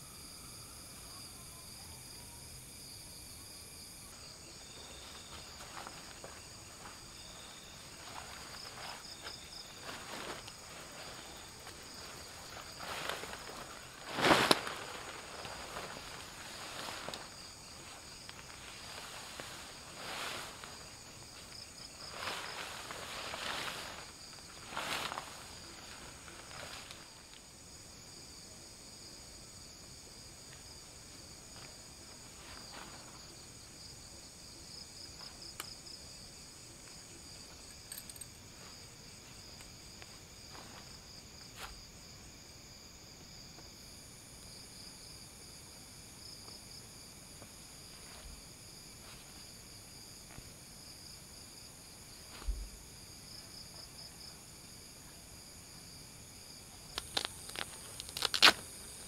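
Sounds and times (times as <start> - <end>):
crickets and insects chirring: 0.0 - 59.0
tent fabric rustling and clicking: 5.0 - 27.4, 37.5 - 38.7, 56.9 - 59.0.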